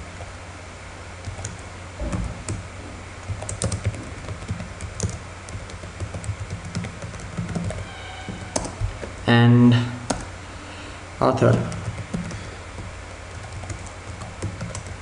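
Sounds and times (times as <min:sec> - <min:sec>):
steady low hum: 0:00.0 - 0:15.0
computer keyboard key clicks: 0:03.3 - 0:07.8.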